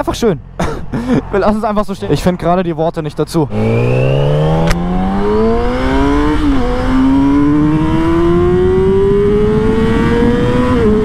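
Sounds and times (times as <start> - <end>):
motorcycle engine accelerating: 3.4 - 11.0
wind rush: 3.4 - 11.0.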